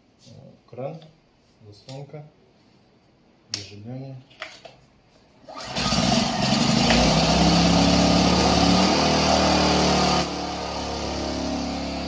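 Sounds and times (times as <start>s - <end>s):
generator engine running: 5.5s - 12.0s.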